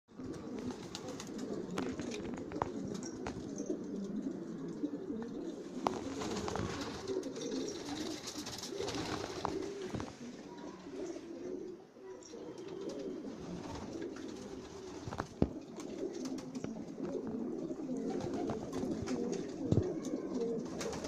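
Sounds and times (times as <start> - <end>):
pigeons cooing: 0.1 - 21.0
pigeon wing flaps: 0.2 - 3.5, 5.8 - 10.2, 13.4 - 17.4, 18.0 - 20.0, 20.6 - 21.0.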